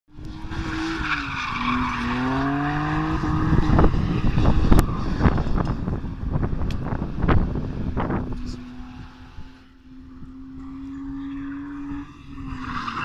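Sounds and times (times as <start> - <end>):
car engine revving: 0.1 - 13.0.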